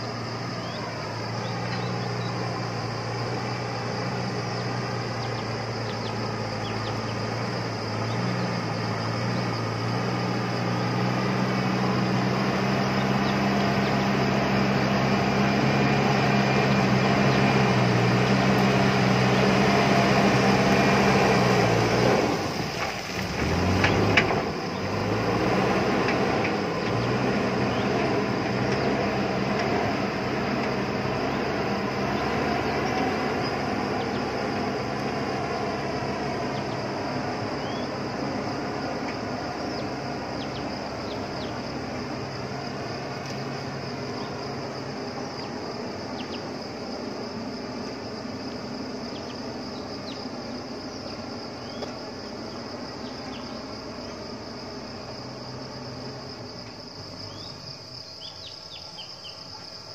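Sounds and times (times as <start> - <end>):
diesel engine working under load: 0.0 - 58.8
bucket pushing earth and rock: 22.4 - 24.5.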